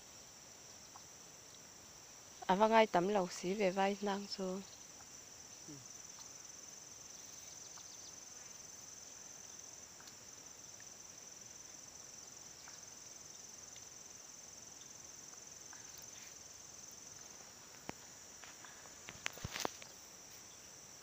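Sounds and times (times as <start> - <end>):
insects droning: 0.0 - 21.0
faint ticks: 0.7 - 1.8, 4.6 - 6.4, 9.5 - 11.0, 12.0 - 14.0, 14.8 - 16.4, 17.0 - 20.6.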